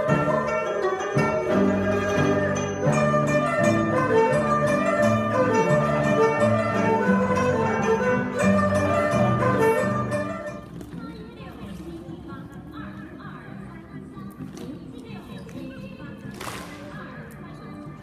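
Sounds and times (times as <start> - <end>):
plucked zither: 0.0 - 10.6
bowed erhu: 0.0 - 10.8.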